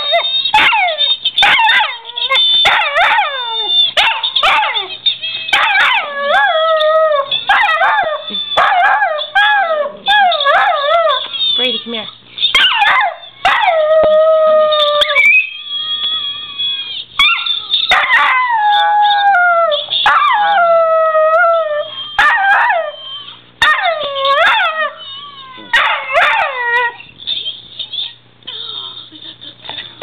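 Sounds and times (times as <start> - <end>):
dog singing from a video: 0.0 - 11.6
dog howling: 5.5 - 11.3, 12.6 - 16.3, 17.2 - 27.0.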